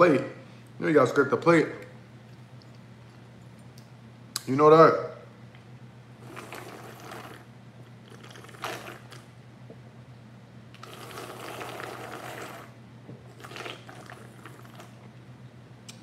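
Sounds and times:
slurping juice: 6.2s - 9.3s, 10.8s - 15.1s.

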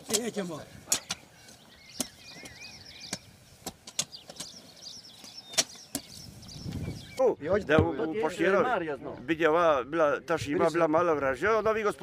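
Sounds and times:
small birds chirping: 0.0s - 8.0s
hoes chopping into soil: 1.9s - 4.6s, 5.2s - 6.8s.

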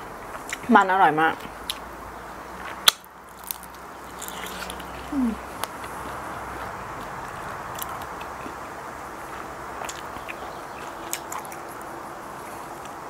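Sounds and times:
person biting and chewing crunchy food: 2.6s - 13.0s.

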